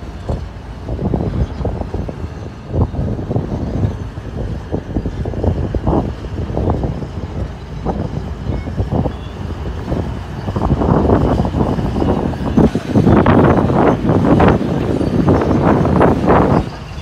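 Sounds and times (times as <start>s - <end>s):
diesel engine rumbling: 0.0s - 17.0s.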